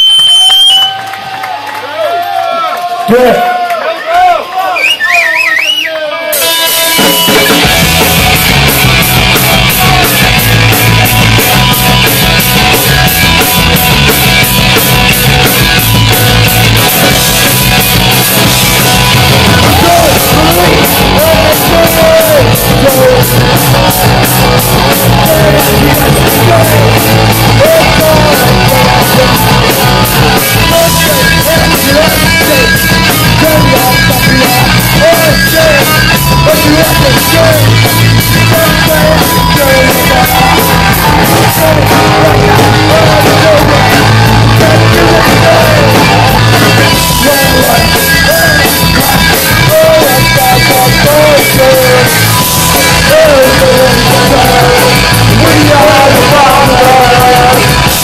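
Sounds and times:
distorted electric guitars: 0:06.2 - 0:58.0
bass guitar: 0:06.3 - 0:58.0
fast driving drumbeat: 0:06.3 - 0:58.0
man singing: 0:19.4 - 0:24.0, 0:24.8 - 0:58.0.

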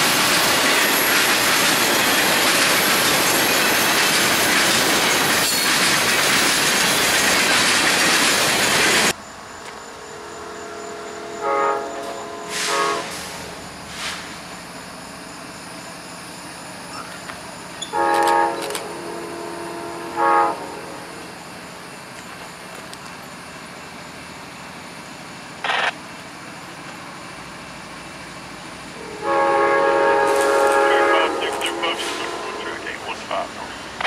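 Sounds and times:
idling diesel locomotive hum: 0:00.0 - 0:34.0
locomotive air horn chord: 0:10.1 - 0:13.5, 0:17.9 - 0:21.2, 0:29.0 - 0:33.1
brief air hiss: 0:12.5 - 0:14.4.

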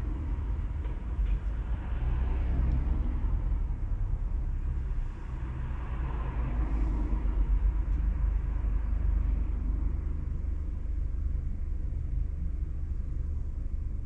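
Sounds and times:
car engine and tyres rumbling: 0:00.0 - 0:14.0.

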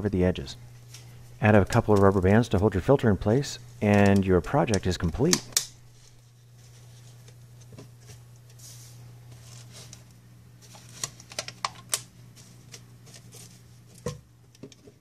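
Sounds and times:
low steady hum: 0:00.0 - 0:15.0
small clicks and snaps: 0:11.0 - 0:12.1.

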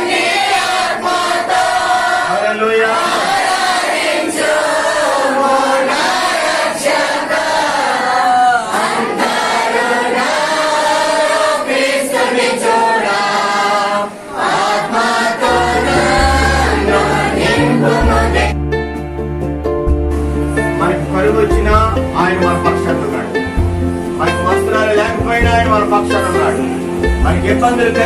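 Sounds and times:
congregation singing: 0:00.0 - 0:19.3, 0:20.2 - 0:28.0
music with heavy bass: 0:15.5 - 0:28.0.

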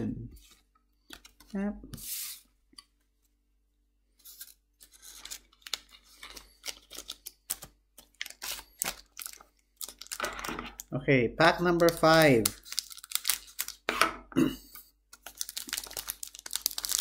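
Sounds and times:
foil wrappers crinkling: 0:04.4 - 0:10.9, 0:11.8 - 0:13.9, 0:15.1 - 0:17.0.

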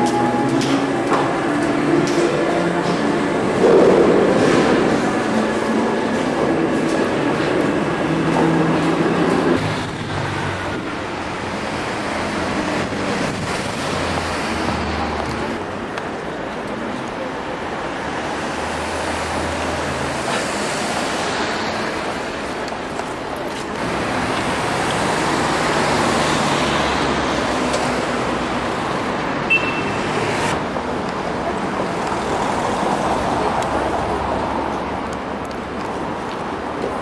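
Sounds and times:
short high beep: 0:00.0 - 0:00.8, 0:29.5 - 0:30.0
road traffic noise: 0:00.0 - 0:37.0.

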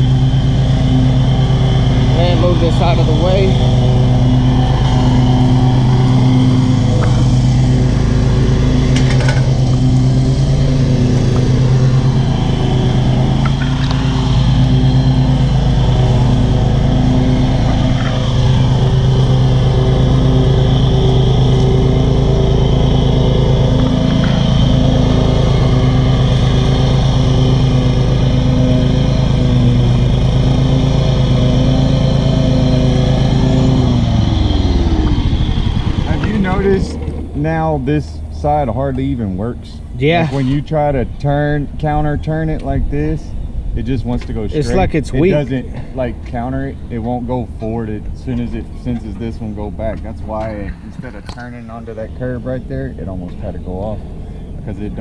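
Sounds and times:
riding mower engine running: 0:00.0 - 0:55.0.

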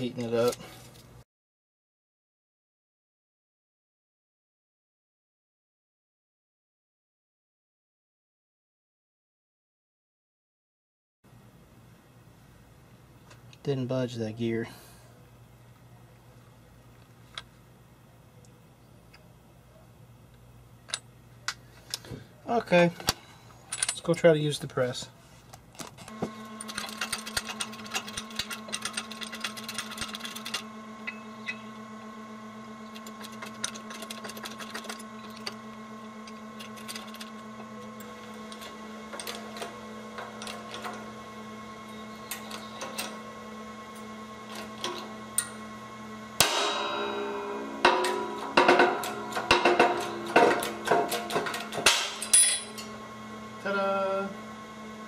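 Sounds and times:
steady low hum: 0:11.3 - 0:55.0
metal-on-metal clanking: 0:46.4 - 0:53.0.

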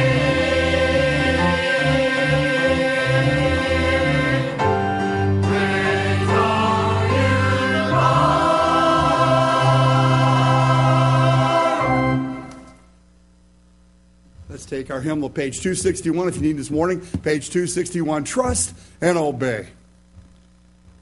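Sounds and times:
choir singing a hymn: 0:00.0 - 0:12.7.

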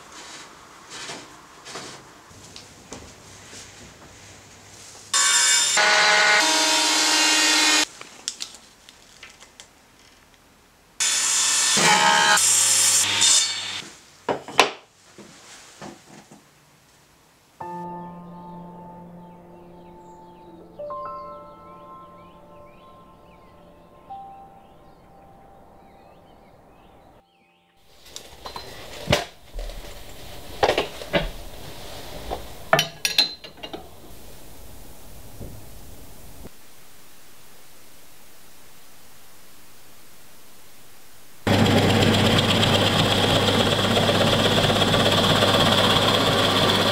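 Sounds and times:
planer cutting a board: 0:05.2 - 0:07.9, 0:11.0 - 0:13.8, 0:41.5 - 0:46.9
power tool cutting: 0:05.2 - 0:07.9, 0:11.0 - 0:13.8, 0:41.5 - 0:46.9.

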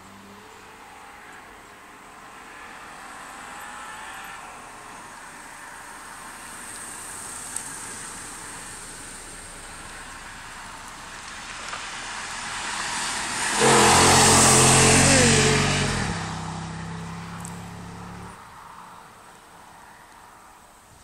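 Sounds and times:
car engine at full throttle passing: 0:05.4 - 0:19.0.

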